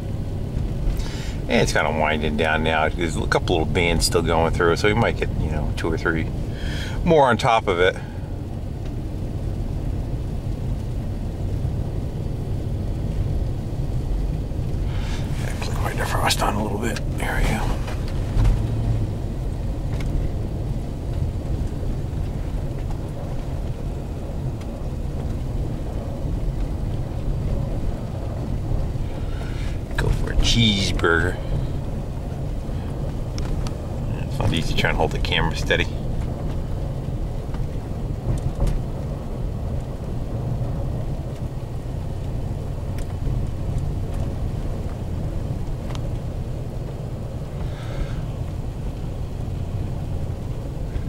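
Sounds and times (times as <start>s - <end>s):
truck driving on packed snow: 0.0s - 51.0s.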